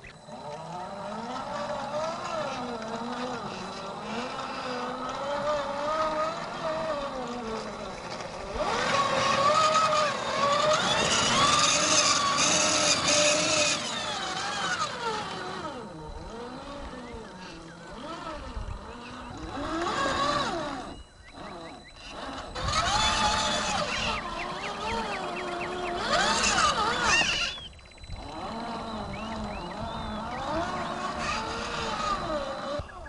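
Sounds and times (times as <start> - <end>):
electric motor whining: 0.0 - 33.0.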